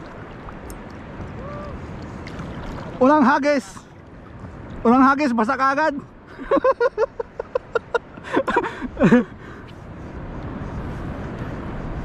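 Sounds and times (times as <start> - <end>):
steady rushing noise: 0.0 - 12.0
man laughing: 6.3 - 9.3.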